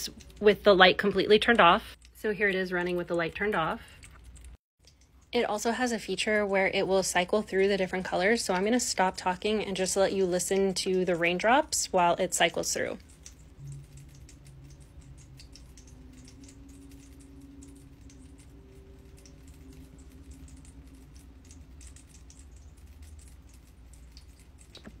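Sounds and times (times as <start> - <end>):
water dripping into basin: 0.0 - 25.0.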